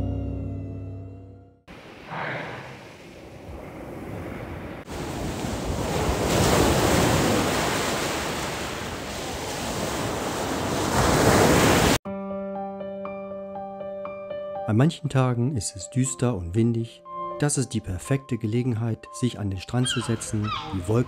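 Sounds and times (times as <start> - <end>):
surf breaking on beach: 1.7 - 12.0.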